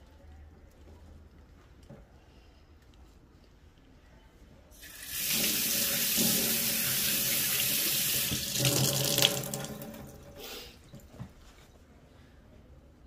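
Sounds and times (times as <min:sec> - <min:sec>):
tap water splashing into sink: 0:04.9 - 0:10.3.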